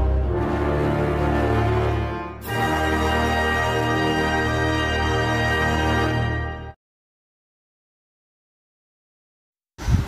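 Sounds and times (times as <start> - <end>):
theme music with held chords: 0.0 - 6.8.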